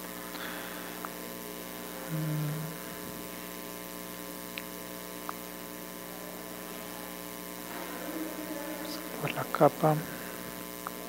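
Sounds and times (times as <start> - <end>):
electrical hum: 0.0 - 11.0
low tone: 2.0 - 2.9.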